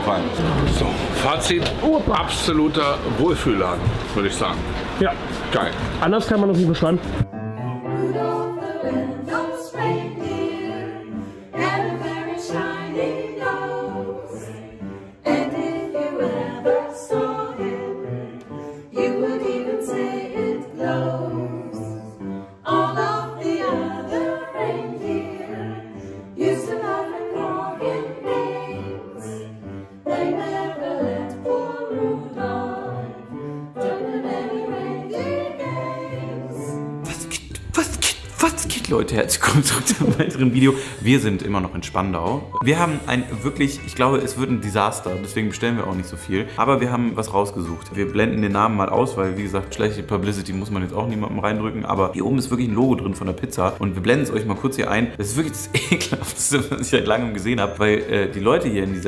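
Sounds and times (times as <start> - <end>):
mixed choir singing: 7.8 - 37.0, 42.7 - 46.2.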